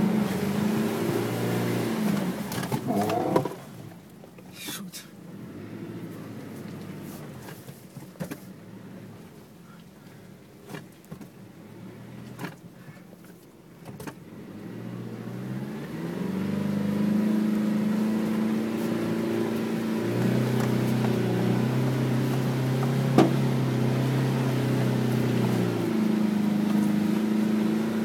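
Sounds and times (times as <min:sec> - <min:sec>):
truck engine revving: 0:00.0 - 0:03.8, 0:14.4 - 0:28.0.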